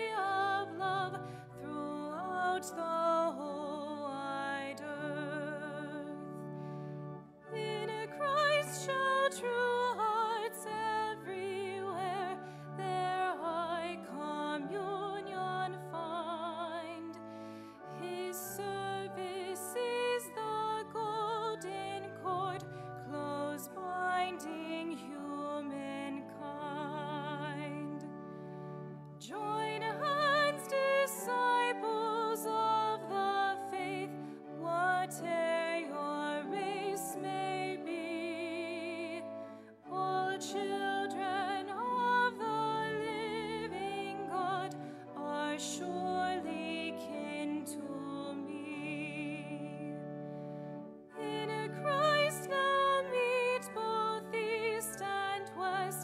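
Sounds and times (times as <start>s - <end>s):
woman singing with vibrato: 0.0s - 6.2s, 7.5s - 17.2s, 18.0s - 28.0s, 29.2s - 39.2s, 39.9s - 49.9s, 51.2s - 56.0s.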